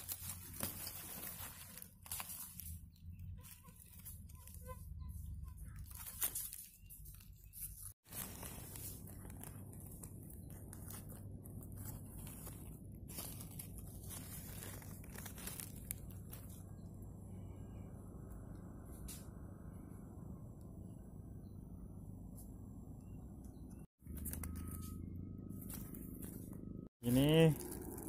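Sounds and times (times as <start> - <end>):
dry leaves and twigs crackling: 0.0 - 17.8, 24.0 - 28.0
low steady rumble: 8.1 - 26.9.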